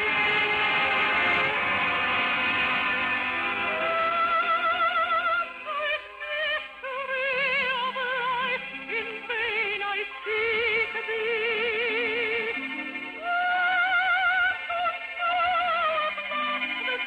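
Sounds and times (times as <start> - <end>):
orchestral operetta music: 0.0 - 17.0.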